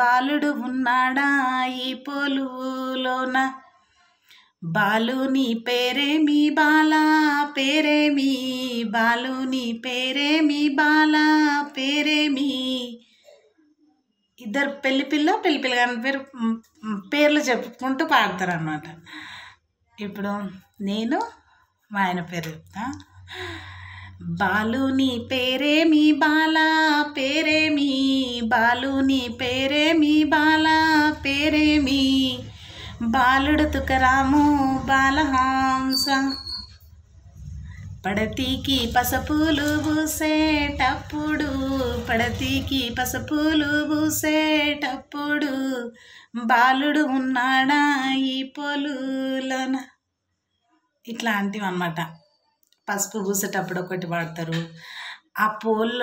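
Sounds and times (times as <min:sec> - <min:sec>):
woman singing unaccompanied folk song: 0:00.0 - 0:04.0, 0:04.6 - 0:13.0, 0:14.4 - 0:19.0, 0:20.0 - 0:36.7, 0:37.9 - 0:49.9, 0:53.1 - 0:56.0.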